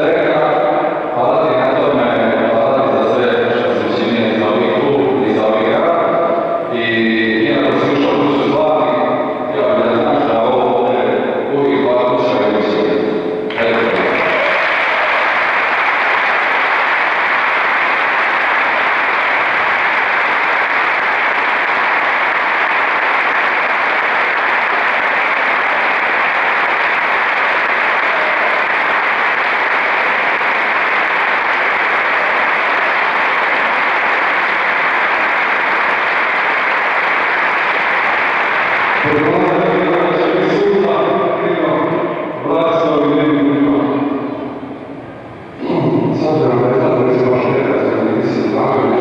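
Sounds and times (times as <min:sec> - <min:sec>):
crowd applauding: 0:13.5 - 0:44.6.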